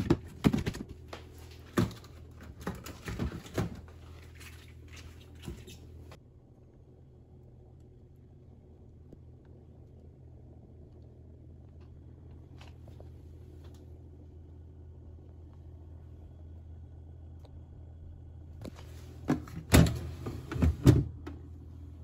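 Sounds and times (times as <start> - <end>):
steady low hum: 0.0 - 22.0
freezer drawer clunks: 19.2 - 21.4.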